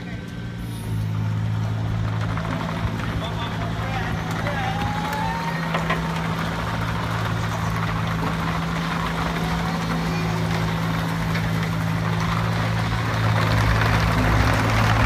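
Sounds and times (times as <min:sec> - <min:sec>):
excavator diesel engine humming: 0:00.0 - 0:15.0.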